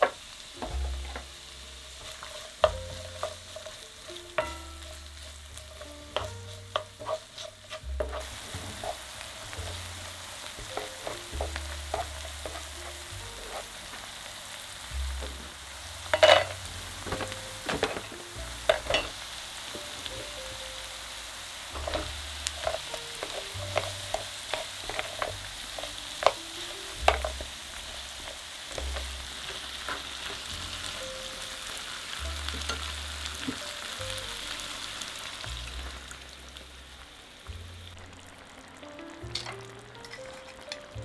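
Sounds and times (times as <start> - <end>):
wooden spatula scraping a pan: 0.0 - 14.1, 21.8 - 30.8
food sizzling in a frying pan: 0.0 - 41.0.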